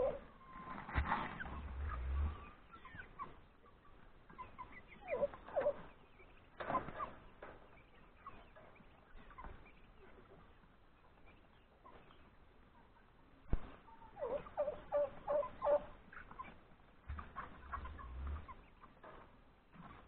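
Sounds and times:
chickens clucking: 0.0s - 20.0s
low rumble: 0.9s - 2.6s.

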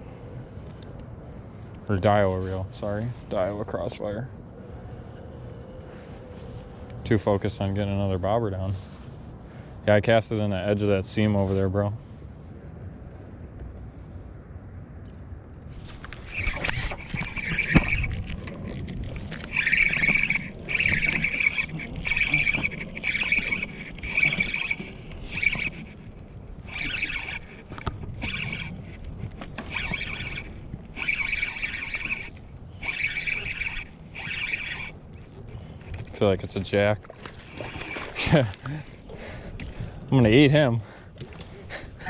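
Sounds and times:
fishing reel drag buzzing: 15.8s - 36.6s, 37.2s - 39.2s.

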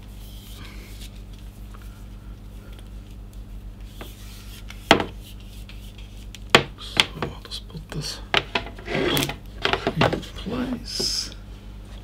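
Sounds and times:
low electrical hum: 0.0s - 12.0s
cable rubbing and rustling: 8.4s - 11.2s.

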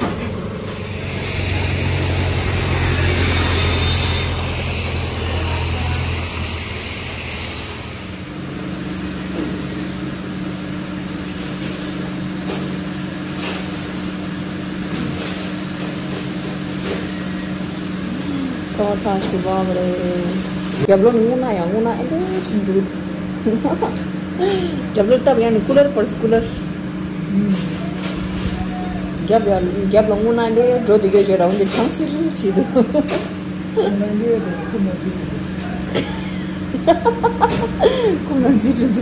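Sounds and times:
machine hum with hiss: 0.0s - 20.9s
low electric hum: 0.0s - 39.0s.

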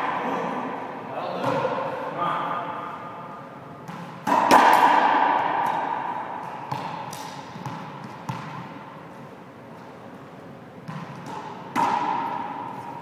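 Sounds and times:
racquetball hits echoing: 0.0s - 3.2s, 3.8s - 9.0s, 10.8s - 13.0s.

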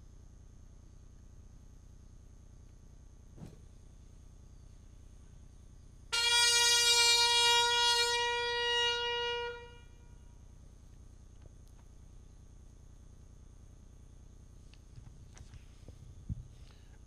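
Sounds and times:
trumpet note held: 6.1s - 10.2s.

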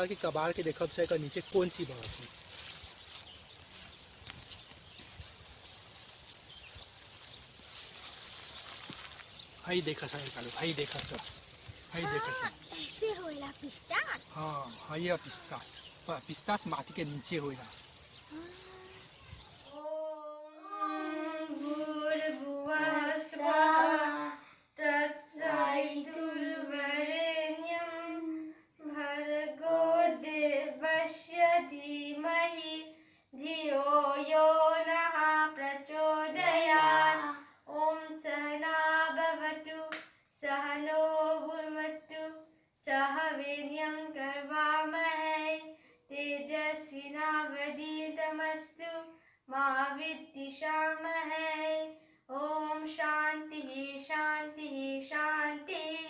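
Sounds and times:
boy singing: 19.7s - 56.0s.

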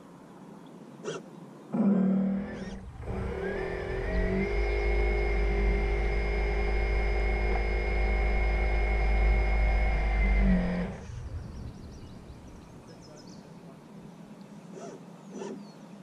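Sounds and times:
electric motor whine: 1.8s - 11.2s
deep rumble: 2.4s - 13.2s.

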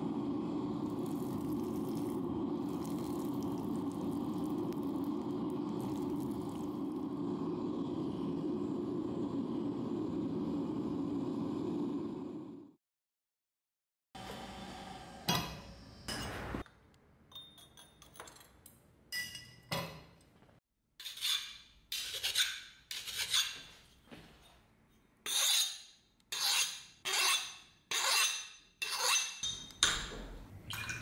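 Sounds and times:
file rasping on steel: 21.0s - 23.7s, 25.2s - 29.4s.

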